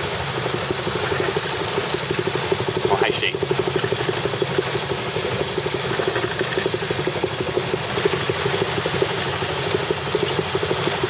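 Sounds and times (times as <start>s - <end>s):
outboard motor running: 0.0s - 11.0s
wind: 0.0s - 11.0s.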